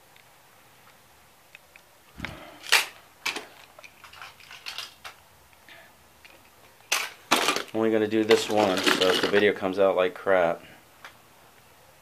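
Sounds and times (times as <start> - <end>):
toy cars clicking and clattering: 2.6 - 5.2, 6.2 - 9.6.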